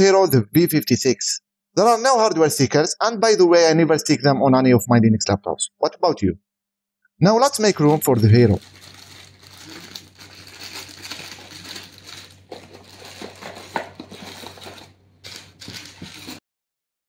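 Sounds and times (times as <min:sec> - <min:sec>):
plastic bag crinkling: 0:07.6 - 0:16.4.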